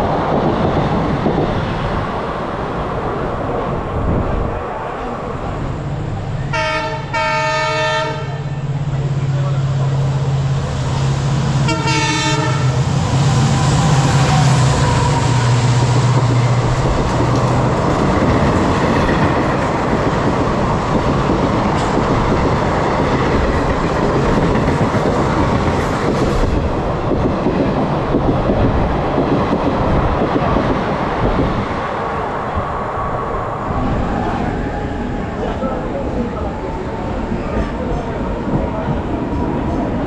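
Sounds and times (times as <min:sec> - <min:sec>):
train wheels rumbling and clattering: 0:08.0 - 0:40.0.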